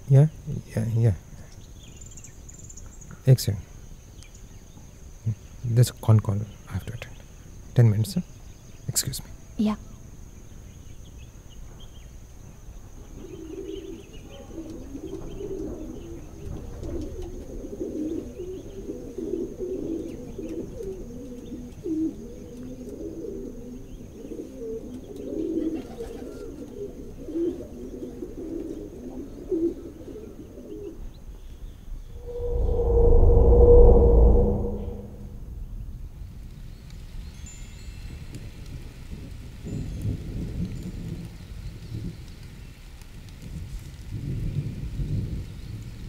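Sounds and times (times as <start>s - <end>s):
pigeons cooing: 13.2s - 31.1s.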